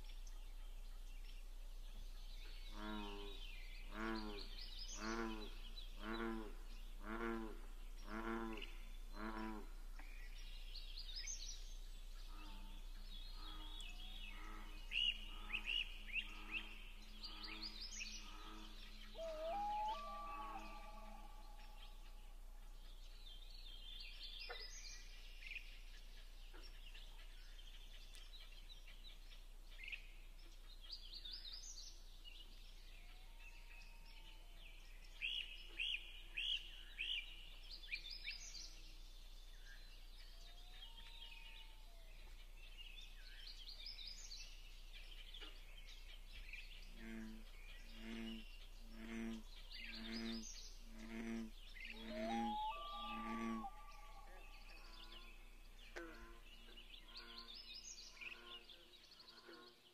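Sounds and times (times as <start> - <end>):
songbirds singing and chirping: 0.0 - 59.9
low pulsing call: 14.2 - 22.5, 50.9 - 55.6.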